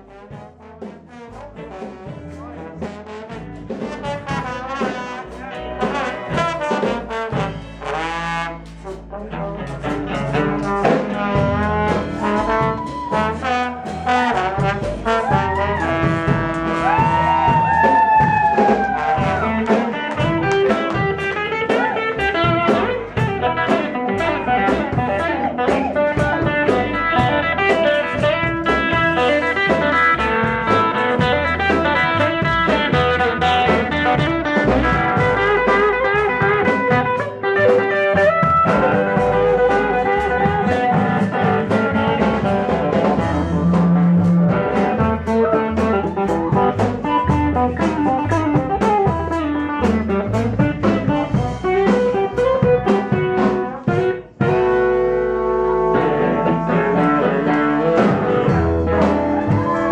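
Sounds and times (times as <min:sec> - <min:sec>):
live band playing upbeat tune: 0:00.0 - 0:59.9
steady drum beat: 0:00.0 - 0:59.9
acoustic guitar strumming: 0:54.0 - 0:59.9.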